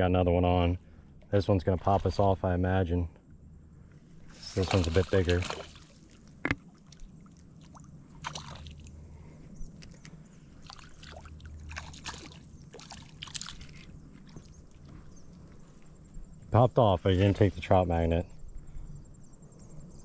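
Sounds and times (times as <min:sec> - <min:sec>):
fish splashing in shallow water: 0:04.3 - 0:14.9.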